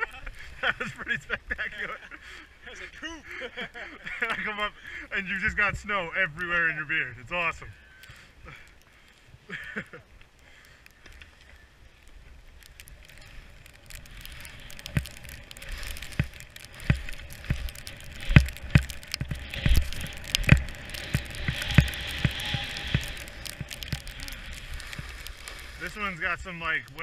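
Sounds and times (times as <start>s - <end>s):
skis sliding through snow: 9.2s - 27.0s
wind rumble on microphone: 12.0s - 27.0s.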